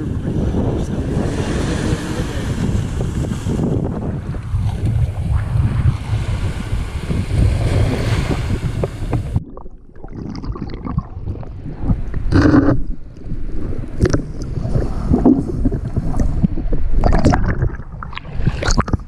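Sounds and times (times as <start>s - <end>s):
surf washing in: 0.0s - 9.4s
underwater gurgling and sloshing: 0.0s - 19.0s
wind on microphone: 0.0s - 19.0s.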